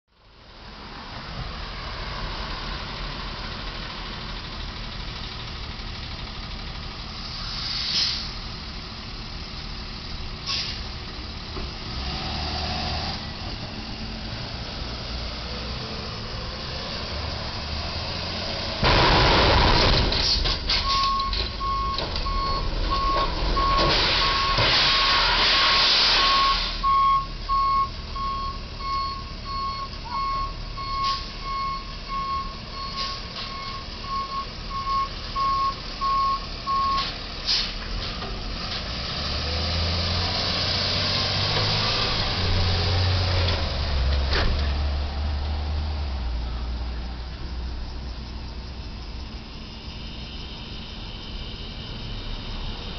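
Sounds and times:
truck engine rumbling: 0.1 - 52.9
loud rush of noise: 18.6 - 20.6
truck reversing alarm beeping: 18.8 - 37.7.

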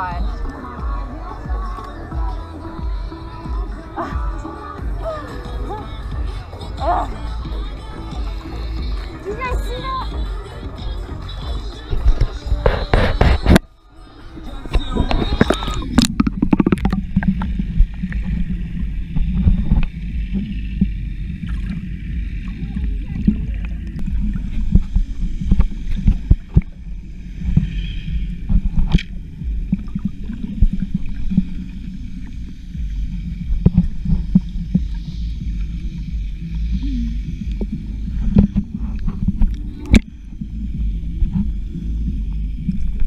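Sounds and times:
underwater rumble of moving water: 0.0 - 43.0.

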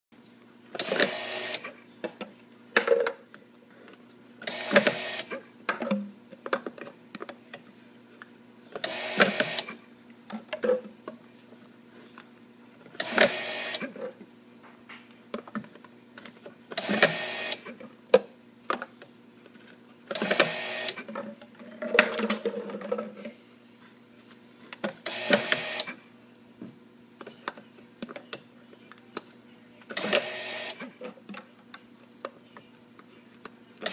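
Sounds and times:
label dispenser running: 0.7 - 1.8, 4.4 - 5.5, 8.8 - 9.8, 12.9 - 14.1, 16.7 - 17.8, 20.1 - 21.2, 25.0 - 26.0, 29.9 - 31.4.

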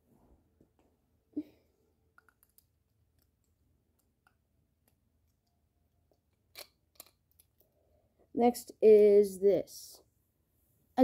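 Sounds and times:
plastic bricks clicking together: 6.2 - 7.6.

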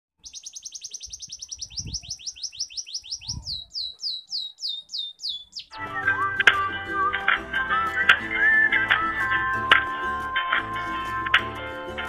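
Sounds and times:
songbird trilling and whistling: 0.2 - 7.2.

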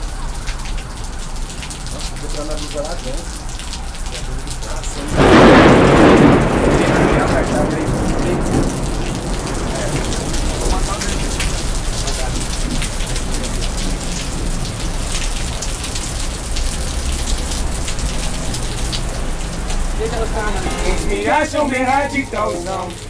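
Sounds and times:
steady rain falling: 0.0 - 23.0
thunder rumble: 5.0 - 21.1.

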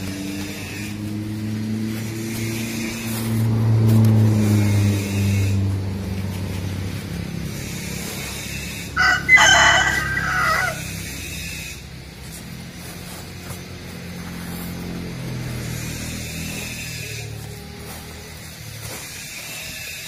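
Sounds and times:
vehicle engine hum: 0.0 - 20.0
rooster crowing: 8.7 - 11.3.

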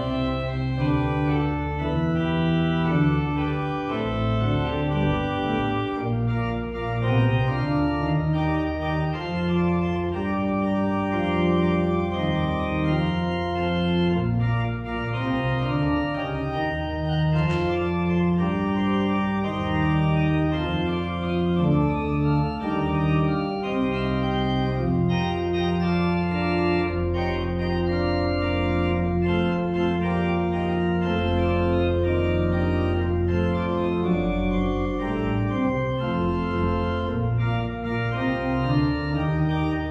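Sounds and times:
church organ chords: 0.0 - 39.9.

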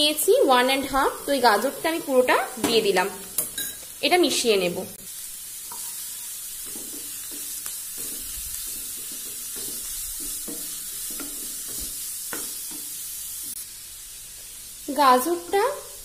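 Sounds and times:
vegetables sizzling in oil: 0.0 - 16.0
spatula scraping pan: 6.6 - 12.9.

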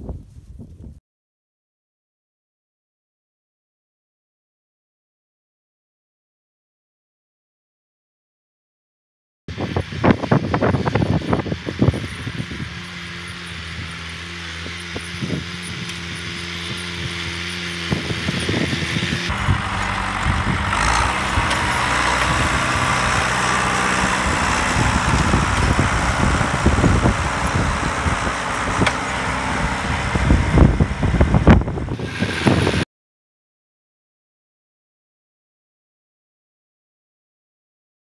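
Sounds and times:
tractor diesel engine running: 9.5 - 32.8.

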